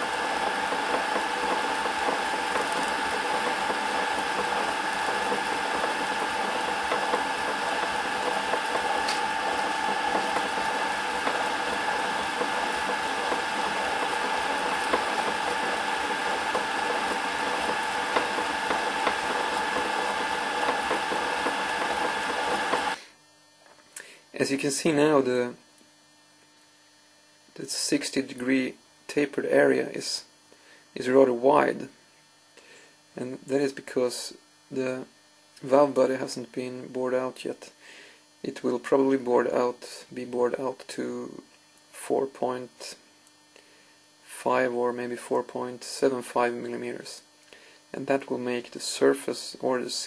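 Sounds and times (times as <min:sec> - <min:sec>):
drill bit boring into plastic: 0:00.0 - 0:23.0
lathe motor whine: 0:00.0 - 0:23.0.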